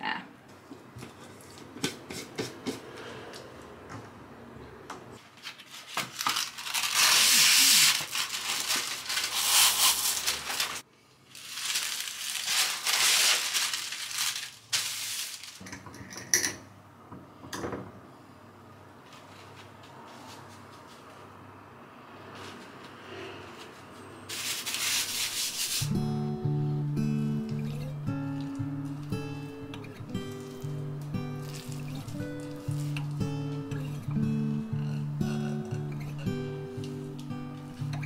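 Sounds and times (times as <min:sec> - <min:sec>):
parchment paper crinkling: 0:05.2 - 0:15.6, 0:24.3 - 0:25.8, 0:31.4 - 0:33.2
kitchen items clicking and knocking: 0:15.6 - 0:16.6.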